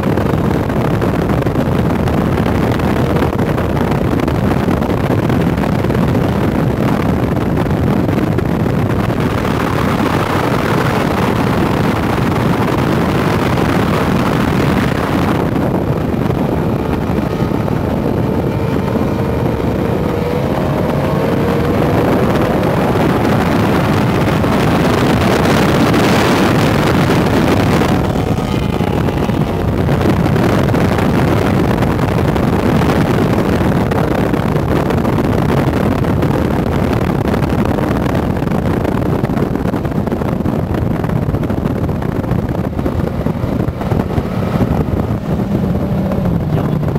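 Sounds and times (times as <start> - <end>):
boat outboard engines at speed: 0.0 - 46.9
faint engine whine: 0.0 - 46.9
wind buffeting microphone: 0.0 - 46.9
water rushing: 8.9 - 35.3.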